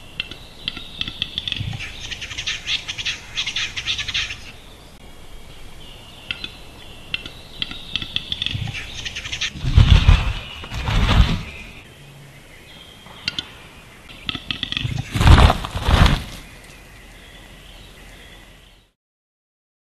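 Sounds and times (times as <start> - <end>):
low thumping: 9.6 - 11.8.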